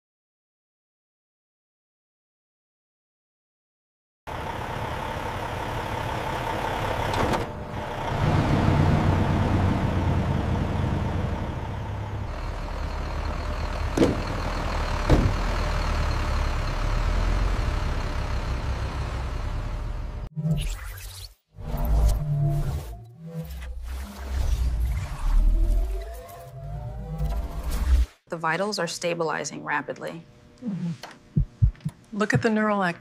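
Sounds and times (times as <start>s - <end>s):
heavy truck engine rumbling: 4.3s - 20.3s
road noise: 4.3s - 20.3s
sharp knocks: 14.0s - 14.3s, 15.1s - 15.4s.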